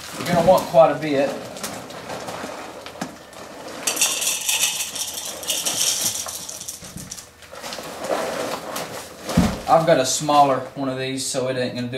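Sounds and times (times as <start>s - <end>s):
dry kibble pouring into container: 3.8s - 7.2s.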